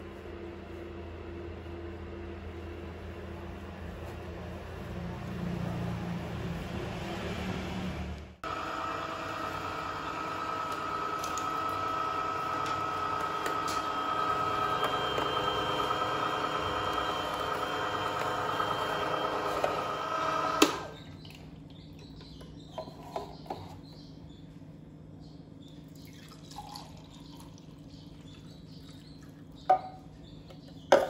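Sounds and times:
juicer whining: 0:08.4 - 0:21.0.

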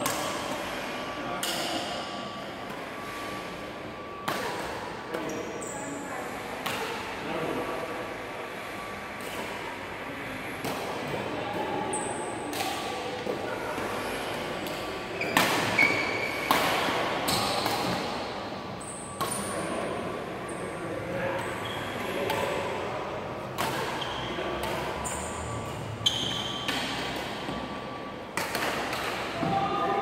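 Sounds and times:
racket striking shuttlecock: 0:23.6 - 0:25.3, 0:28.3 - 0:29.5
faint voices: 0:29.1 - 0:30.0.

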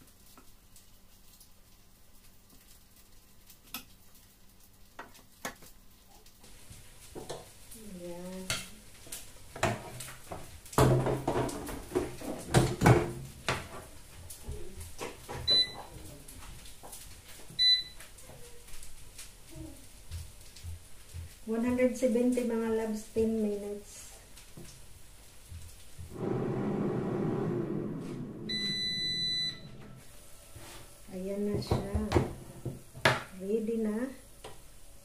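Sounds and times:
short electronic beeps: 0:28.5 - 0:29.8.

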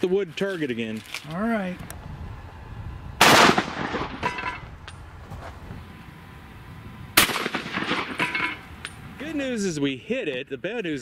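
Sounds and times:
shotgun firing with echo: 0:03.2 - 0:04.3, 0:07.2 - 0:08.2.

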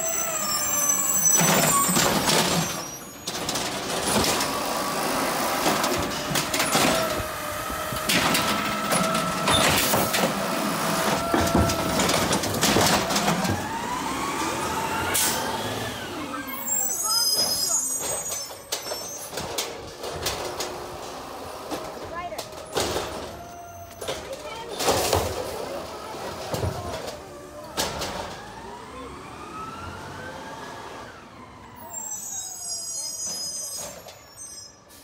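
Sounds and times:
hydraulic arm whine: 0:00.0 - 0:19.4
garbage cart knocks and bangs: 0:08.0 - 0:14.0.

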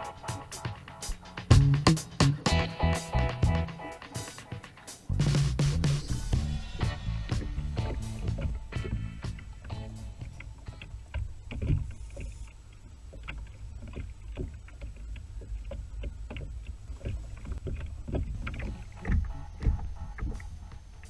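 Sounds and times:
water lapping against plastic hull: 0:04.3 - 0:21.0.

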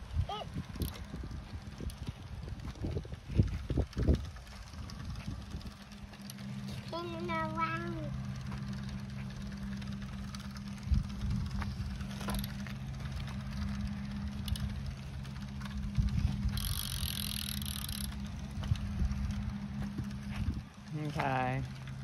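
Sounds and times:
bicycle freewheel buzzing: 0:00.0 - 0:22.0
bike rolling on asphalt: 0:00.0 - 0:22.0
low hum: 0:00.0 - 0:22.0.

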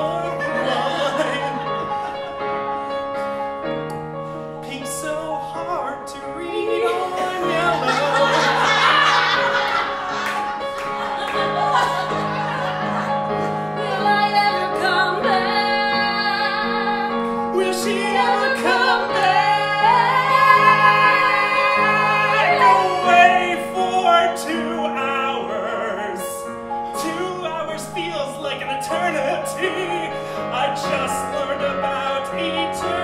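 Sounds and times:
man singing with vibrato: 0:00.0 - 0:01.8, 0:04.6 - 0:09.4, 0:17.5 - 0:33.0
electric keyboard chords: 0:00.0 - 0:33.0.

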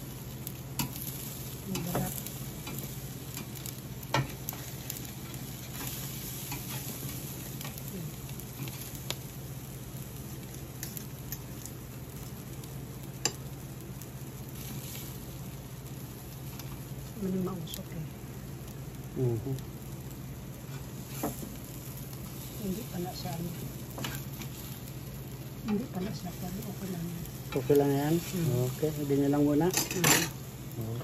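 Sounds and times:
fish sizzling on a grill: 0:00.0 - 0:31.0
metal spatula clinking on grate: 0:29.7 - 0:30.4.

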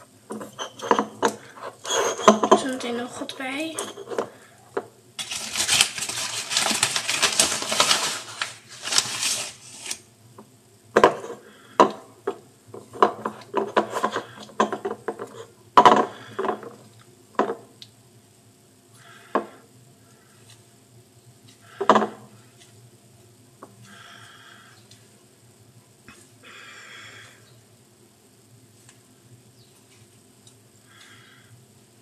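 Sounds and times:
bowl and utensils clattering: 0:00.3 - 0:08.4, 0:13.0 - 0:16.8
rustling: 0:05.2 - 0:10.0.

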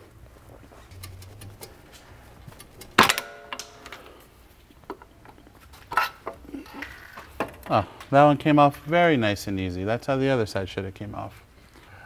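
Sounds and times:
sharp metallic clank: 0:03.0 - 0:04.2.

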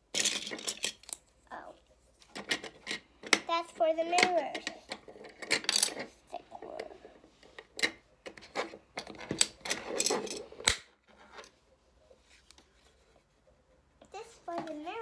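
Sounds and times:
plastic toy pieces clicking and clattering: 0:00.1 - 0:01.2, 0:02.3 - 0:10.8.

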